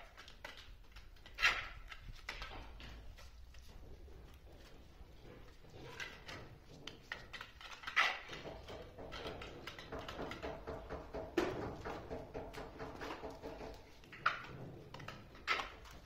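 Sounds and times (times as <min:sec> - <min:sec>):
trowel scraping wet mortar: 0:04.3 - 0:11.1.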